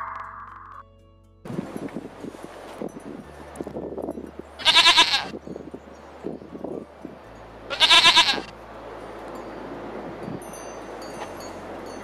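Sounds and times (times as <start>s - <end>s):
goats bleating: 4.6s - 5.3s, 7.7s - 8.5s.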